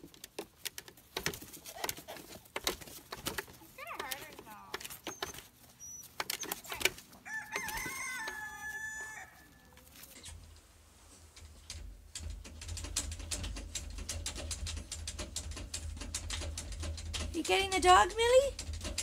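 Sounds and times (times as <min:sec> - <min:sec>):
rooster crowing: 0:07.2 - 0:09.8.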